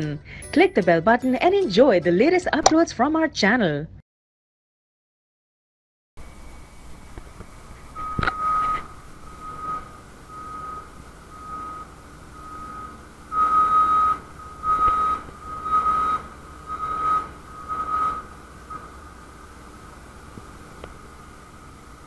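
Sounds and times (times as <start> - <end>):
vehicle reversing alarm beeping: 7.9 - 19.2.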